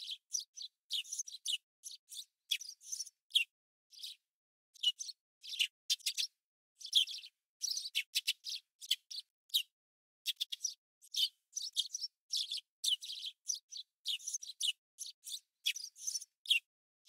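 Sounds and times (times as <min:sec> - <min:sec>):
small songbird chirping: 0:00.0 - 0:16.7.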